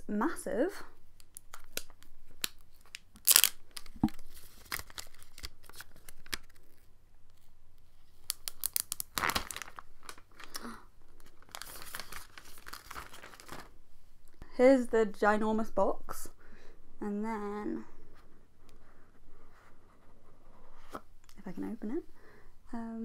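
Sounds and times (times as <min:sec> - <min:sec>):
sharp plastic rips: 0:01.2 - 0:06.6, 0:08.2 - 0:13.7
plastic wrap crinkling and tearing: 0:01.2 - 0:07.5, 0:08.2 - 0:13.7.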